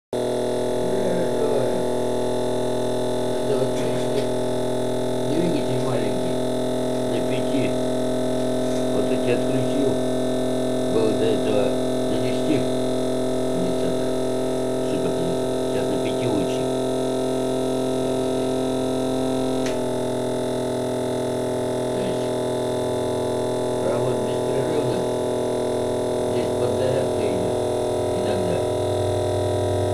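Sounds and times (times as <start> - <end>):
electrical motor hum: 0.2 - 29.9
man speaking: 0.8 - 1.9, 3.3 - 4.3, 5.3 - 6.4, 7.0 - 7.8, 8.4 - 10.0, 10.9 - 12.7, 13.5 - 14.2, 14.8 - 16.7, 21.9 - 22.4, 23.8 - 25.2, 26.3 - 28.7.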